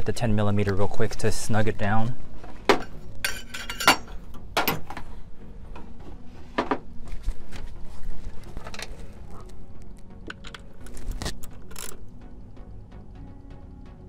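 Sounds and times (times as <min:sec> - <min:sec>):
metallic clicks of hand tools: 0:10.3 - 0:12.0.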